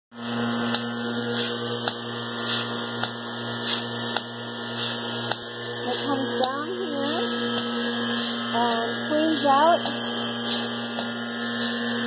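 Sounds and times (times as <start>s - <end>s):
vacuum pump motor hum: 0.1s - 12.0s.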